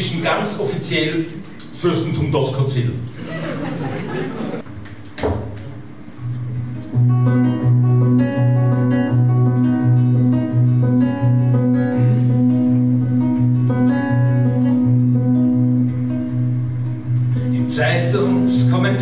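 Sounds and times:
fingerstyle acoustic guitar: 5.7s - 19.0s.

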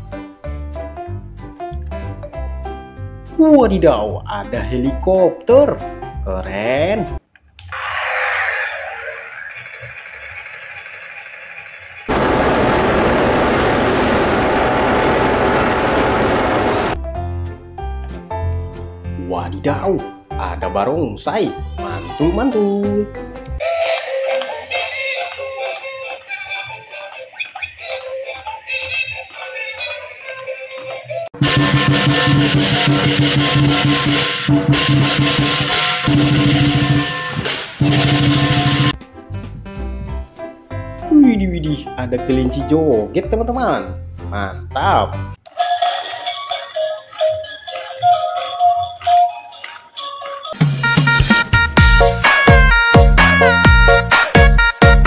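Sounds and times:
toy helicopter whirring: 7.8s - 12.1s
turbine helicopter running close: 9.6s - 17.0s
cymbals clashing: 31.4s - 38.9s
drum beating rapidly: 31.4s - 38.9s, 50.6s - 55.0s.

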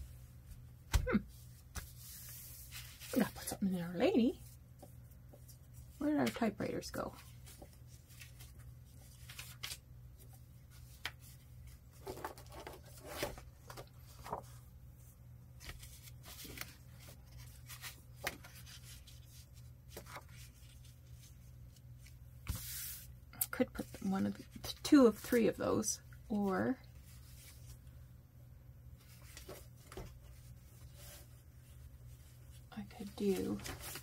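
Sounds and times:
paper rustling: 7.2s - 14.6s, 15.6s - 23.1s, 29.0s - 34.0s.

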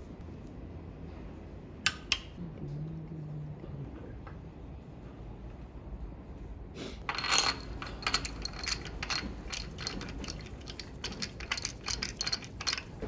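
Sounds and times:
metal tool clinking on metal: 7.1s - 13.0s.

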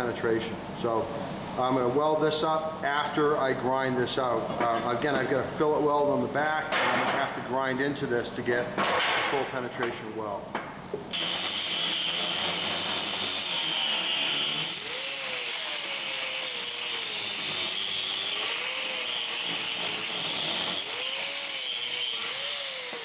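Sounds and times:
angle grinder grinding steel: 11.1s - 23.0s.

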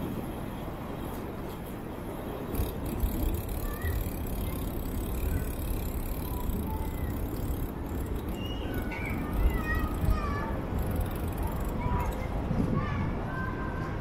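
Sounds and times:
bicycle road noise: 0.0s - 14.0s
wind rumbling on microphone: 0.0s - 14.0s
faint high chirps: 8.1s - 10.0s.

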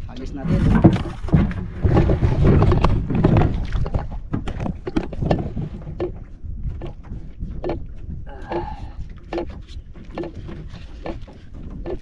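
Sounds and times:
water splashing against hull: 0.0s - 12.0s
wind rumbling on microphone: 0.0s - 12.0s.

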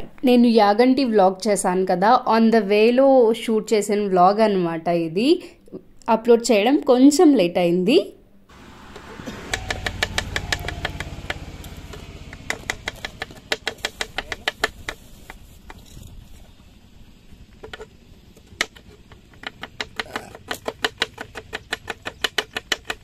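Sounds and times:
low hum: 8.5s - 13.9s.

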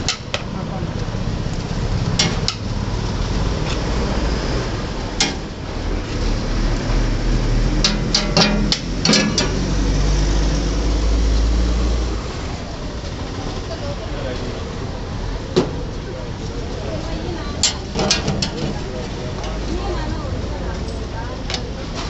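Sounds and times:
street noise rumble: 0.0s - 22.0s
sharp clicks and knocks: 2.1s - 2.7s, 5.2s - 5.5s, 7.8s - 9.7s, 17.6s - 18.9s.

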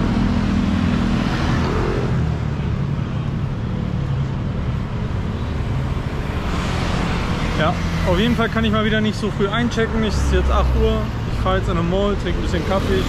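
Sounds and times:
road traffic noise: 0.0s - 13.0s
vehicle engine hum: 0.0s - 13.0s.

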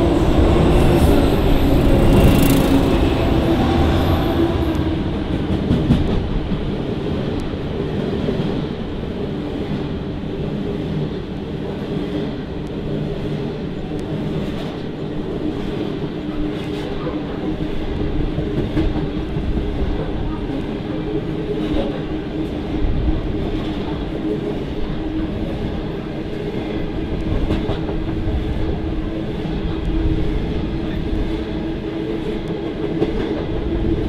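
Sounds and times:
diesel locomotive engine passing: 0.0s - 14.4s.

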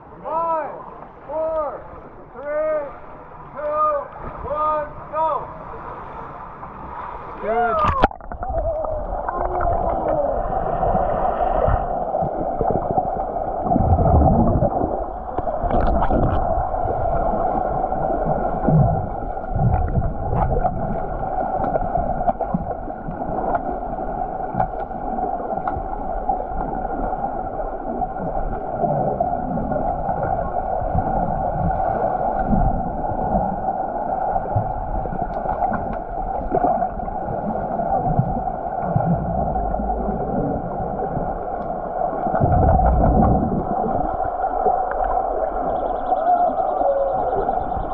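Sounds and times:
steady underwater hum: 0.0s - 47.9s
underwater bubbling: 5.6s - 47.9s
muffled underwater thuds: 42.3s - 43.6s.

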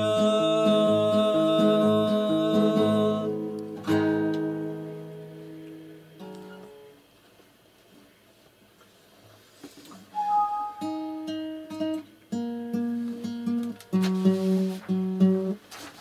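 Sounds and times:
acoustic guitar strumming: 0.0s - 7.0s, 10.1s - 15.6s
person singing held note: 10.1s - 10.9s.

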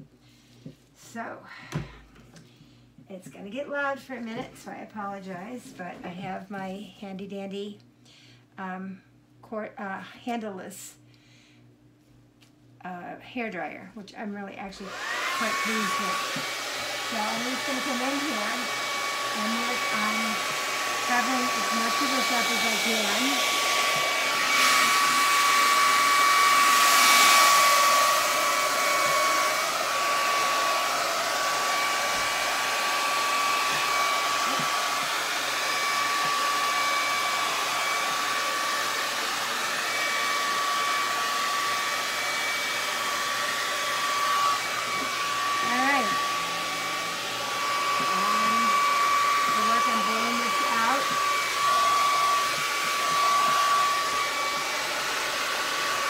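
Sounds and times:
hair dryer running: 14.2s - 56.0s.

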